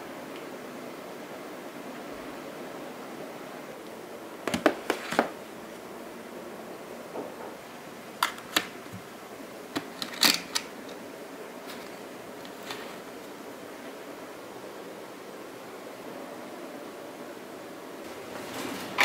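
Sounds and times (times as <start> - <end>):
steady low hiss: 0.0 - 19.0
small items placed into compartments: 8.2 - 9.1, 9.7 - 11.0, 11.6 - 13.1.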